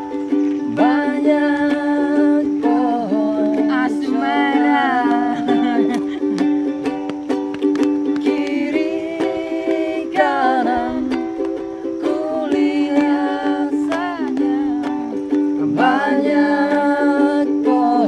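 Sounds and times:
ukulele strumming chords: 0.0s - 18.0s
man singing: 0.7s - 1.9s, 15.6s - 18.0s.

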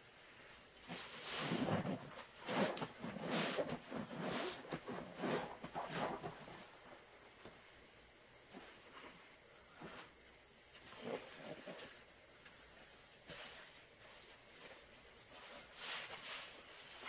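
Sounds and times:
wet sponges swishing in suds: 0.9s - 6.7s.

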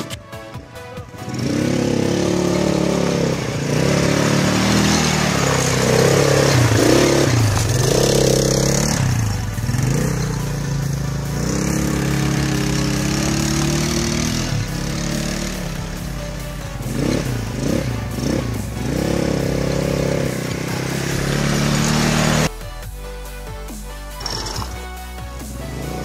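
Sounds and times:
quad bike engine revving: 1.1s - 22.6s, 24.2s - 26.0s.

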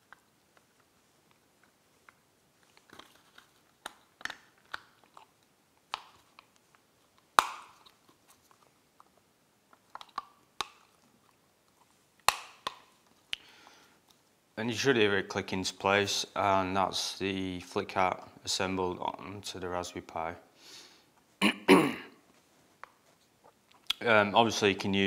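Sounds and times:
plastic case parts clicking: 9.8s - 10.9s.

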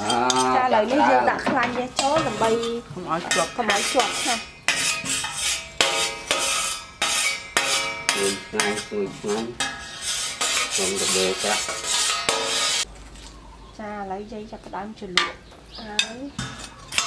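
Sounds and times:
brush scraping aluminium tray: 0.0s - 12.9s.

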